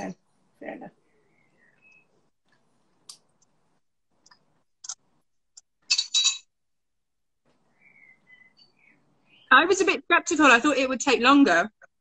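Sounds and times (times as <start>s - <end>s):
tableware clinking: 5.9s - 6.5s.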